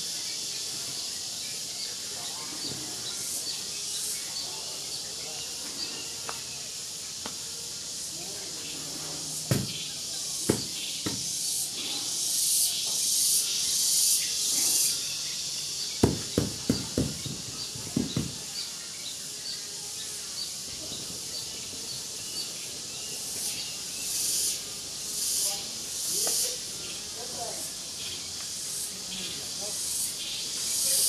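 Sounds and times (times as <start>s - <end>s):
insects buzzing: 0.0s - 31.0s
dull knocks: 9.5s - 9.8s, 16.0s - 18.5s.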